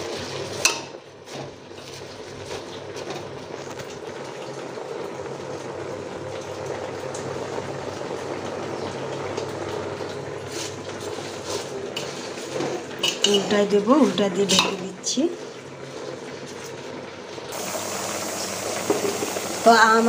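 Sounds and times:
stirring scraping in pot: 0:10.5 - 0:14.8
gas stove burner rushing: 0:17.0 - 0:20.0.

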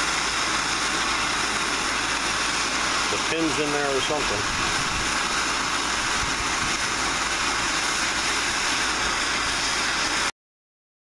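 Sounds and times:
gas torch flame hissing: 0:00.0 - 0:10.3.

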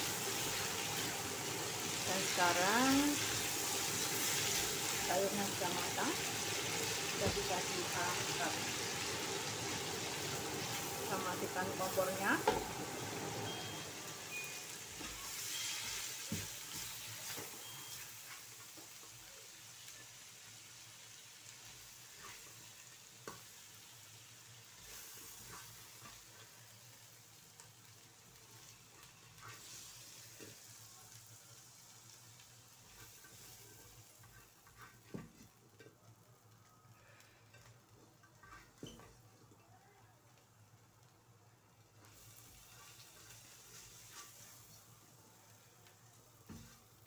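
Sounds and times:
food sizzling in a wok: 0:00.0 - 0:47.0
spatula scraping and knocking wok: 0:09.6 - 0:12.9, 0:13.5 - 0:19.0, 0:32.8 - 0:35.9.

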